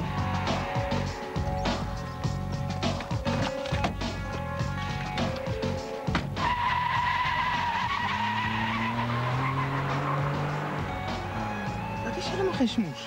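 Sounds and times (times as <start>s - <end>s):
background music: 0.0s - 13.0s
sports car engine revving: 1.7s - 12.0s
tyres squealing: 1.7s - 12.6s.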